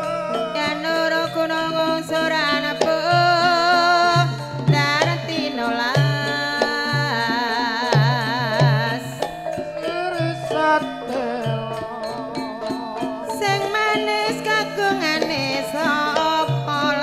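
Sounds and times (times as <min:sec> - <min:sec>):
high melody with wavering vibrato: 0:00.0 - 0:17.0.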